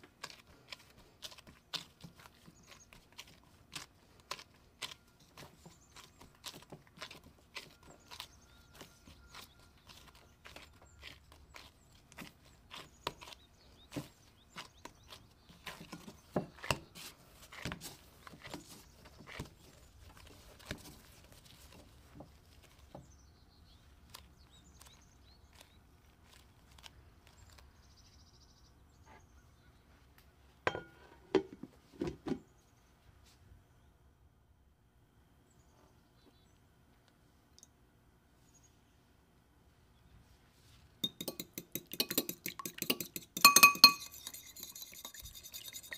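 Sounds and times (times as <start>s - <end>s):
lid knocking on glass bowl: 30.7s - 31.5s, 41.0s - 44.4s
dough thumping against glass bowl: 41.0s - 45.4s.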